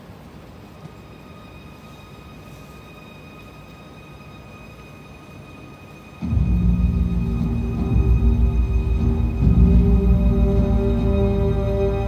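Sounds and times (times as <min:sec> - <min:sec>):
faint high whine: 0:00.0 - 0:12.0
low rumble: 0:06.2 - 0:12.0.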